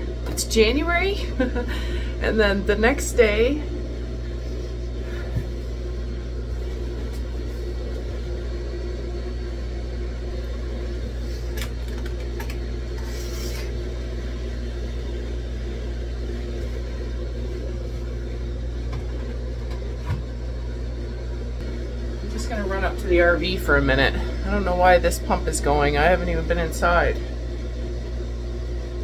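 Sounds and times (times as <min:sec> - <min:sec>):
machine humming: 0:00.0 - 0:29.0.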